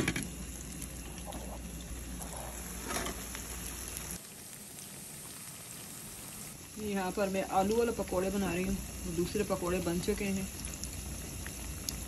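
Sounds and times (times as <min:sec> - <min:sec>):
pot bubbling under glass lid: 0:00.0 - 0:05.9
deep-frying sizzle in oil: 0:00.0 - 0:12.0.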